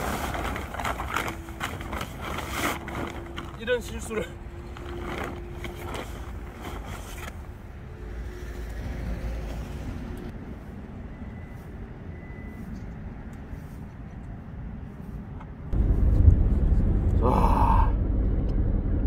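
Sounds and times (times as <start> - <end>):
plastic bag crinkling: 0.0 - 4.0
low outdoor rumble: 0.0 - 19.0.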